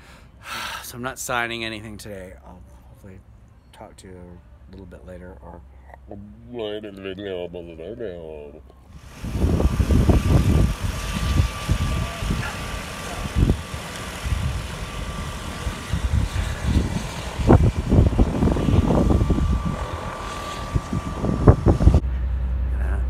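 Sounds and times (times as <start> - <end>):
floatplane engine humming: 2.4 - 23.0
wind gusts on microphone: 8.9 - 22.0.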